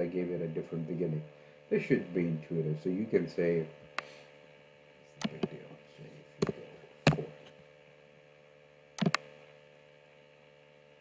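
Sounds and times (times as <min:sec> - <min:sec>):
low electrical hum: 0:00.0 - 0:11.0
keyboard and mouse clicks: 0:05.2 - 0:05.5, 0:09.0 - 0:09.2.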